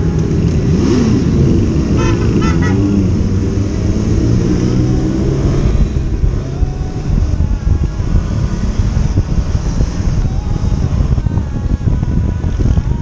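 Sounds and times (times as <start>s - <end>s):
motorcycle engine running: 0.0s - 13.0s
road noise: 0.0s - 13.0s
short horn toots: 1.9s - 2.9s.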